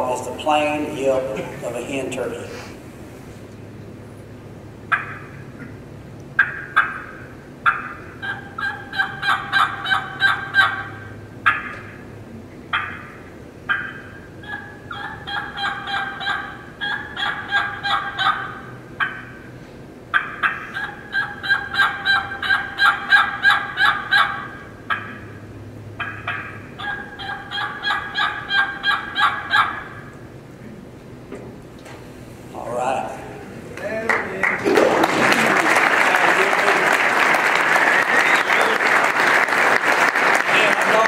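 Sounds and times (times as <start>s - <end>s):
turkey call yelps: 4.9s - 5.8s, 6.4s - 19.5s, 20.1s - 30.3s.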